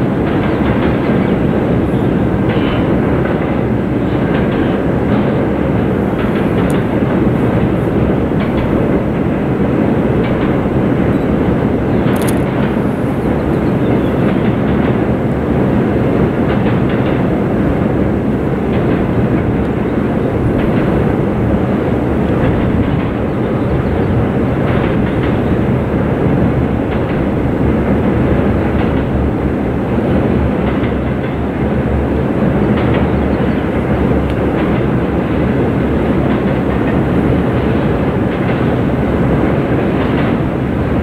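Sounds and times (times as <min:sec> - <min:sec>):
faint rail clacks: 0:00.0 - 0:41.0
train wheels rumbling on bridge: 0:00.0 - 0:41.0.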